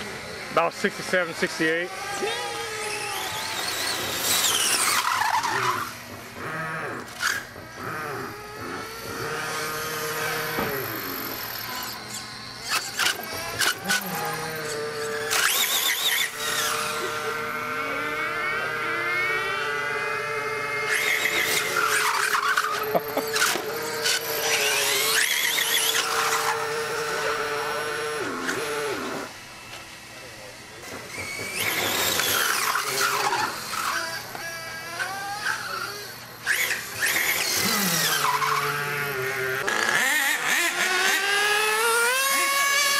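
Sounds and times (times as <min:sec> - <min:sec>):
radio-controlled car motors whining: 0:00.0 - 0:42.9
high-pitched screeching: 0:01.9 - 0:29.3.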